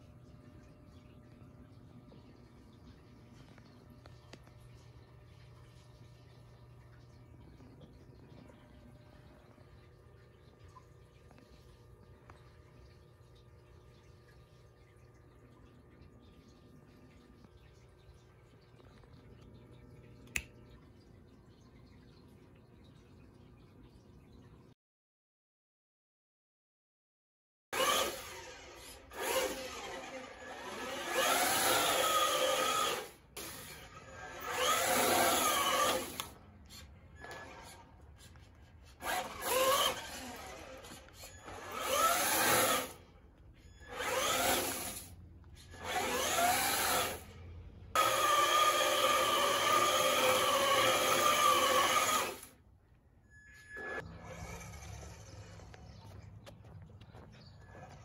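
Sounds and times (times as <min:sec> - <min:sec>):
electric toy car motor whining: 0:27.8 - 0:36.4, 0:39.0 - 0:43.0, 0:43.8 - 0:47.3, 0:48.0 - 0:52.5, 0:53.6 - 0:55.9.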